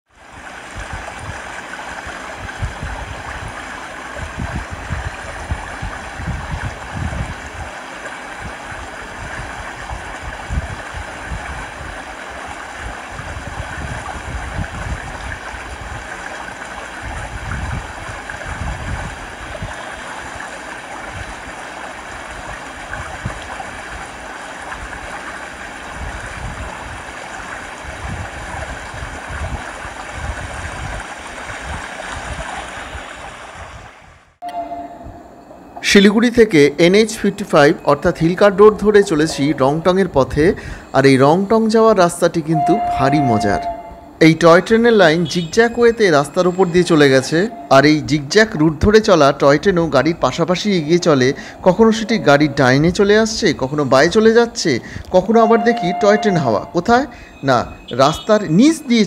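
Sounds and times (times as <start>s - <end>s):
wind buffeting microphone: 0.2s - 35.8s.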